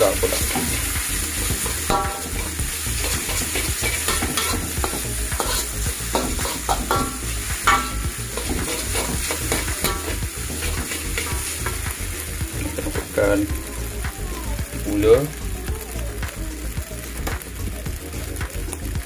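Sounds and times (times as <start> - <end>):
metal spatula scraping wok: 0.0 - 13.5
food sizzling in oil: 0.0 - 19.0.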